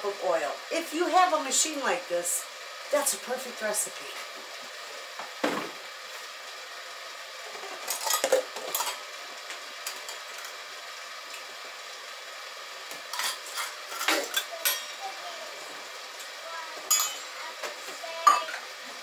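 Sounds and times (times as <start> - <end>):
popcorn machine hissing: 0.0 - 19.0
dishes clinking and clattering: 7.6 - 9.0, 13.1 - 15.0, 16.9 - 17.4, 18.2 - 18.6.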